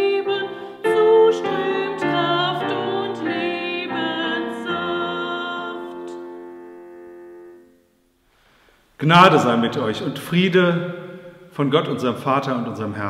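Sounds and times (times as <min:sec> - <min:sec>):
woman singing a hymn: 0:00.0 - 0:06.5
digital piano accompaniment: 0:00.0 - 0:08.0.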